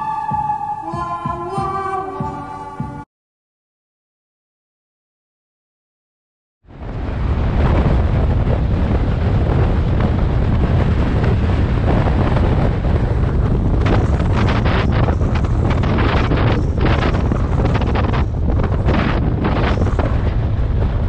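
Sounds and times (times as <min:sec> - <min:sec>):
wind rushing over microphone: 0:06.7 - 0:21.0.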